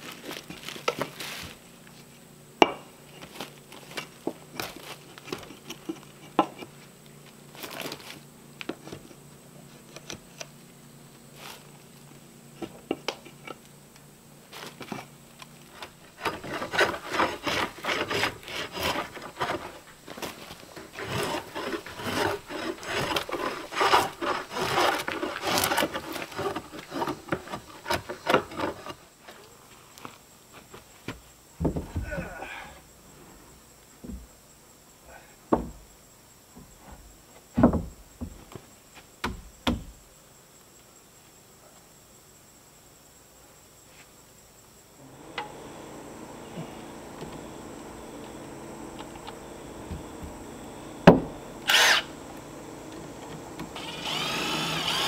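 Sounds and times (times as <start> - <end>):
hatchet chopping and scraping wood: 14.7 - 29.0, 45.2 - 55.0.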